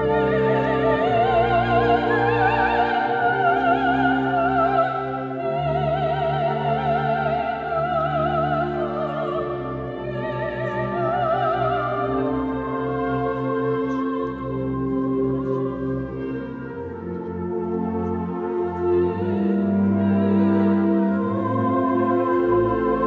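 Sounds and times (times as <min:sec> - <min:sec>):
soprano singing with vibrato: 0:00.0 - 0:16.3.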